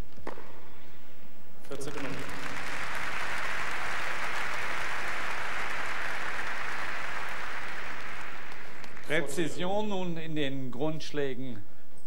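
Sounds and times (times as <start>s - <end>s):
crowd applauding: 1.7s - 9.4s.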